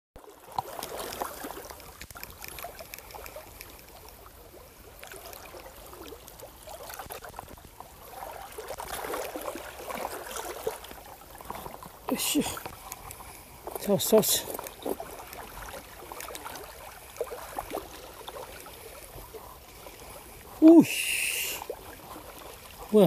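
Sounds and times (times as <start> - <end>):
water lapping among rocks: 0.2 - 23.0
light clicks: 2.0 - 4.3, 12.6 - 15.5.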